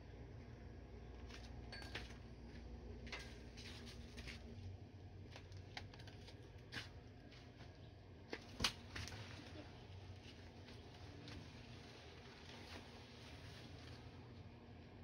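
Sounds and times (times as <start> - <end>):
faint clicks and rustles: 3.0 - 15.0.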